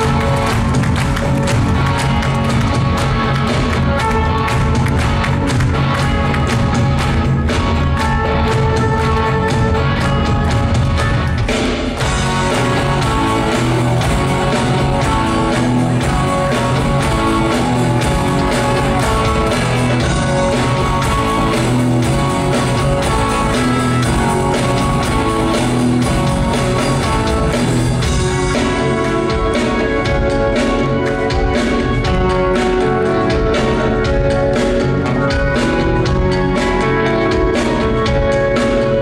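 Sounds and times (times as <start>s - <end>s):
live rock band playing: 0.0s - 39.0s.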